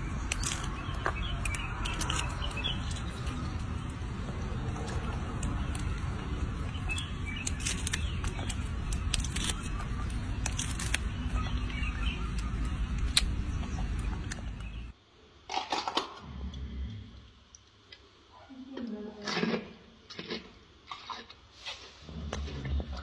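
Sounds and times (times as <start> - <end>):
lychee shells cracking: 0.0 - 14.8
birds chirping: 0.0 - 15.0
low outdoor rumble: 0.0 - 15.0.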